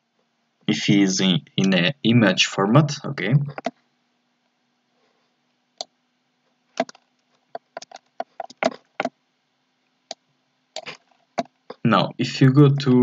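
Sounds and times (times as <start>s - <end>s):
faint hum: 0.0s - 13.0s
mouse and keyboard clicks: 6.8s - 9.1s.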